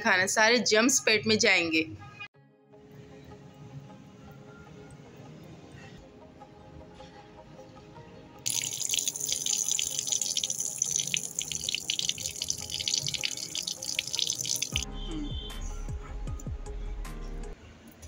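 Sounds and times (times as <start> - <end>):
faint background music: 0.0 - 18.0
water running from tap: 8.5 - 14.8.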